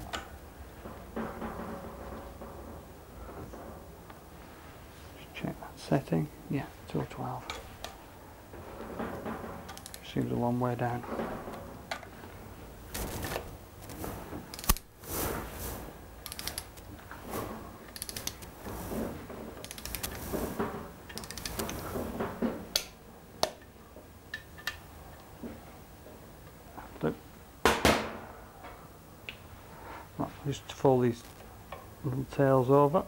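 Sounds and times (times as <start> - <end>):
sharp torque wrench clicks: 16.2 - 16.7, 18.0 - 18.4
torque wrench ratchet clicking: 18.0 - 18.4.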